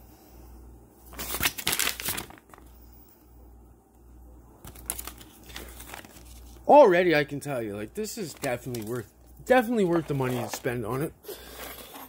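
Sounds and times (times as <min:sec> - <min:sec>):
paper leaflet rustling: 0:01.1 - 0:02.7, 0:04.6 - 0:06.7, 0:08.0 - 0:12.0.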